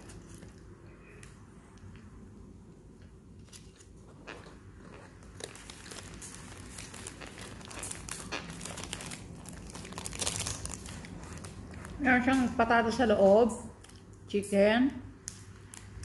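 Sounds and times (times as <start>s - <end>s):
paper wrapper crinkling: 5.2s - 12.0s.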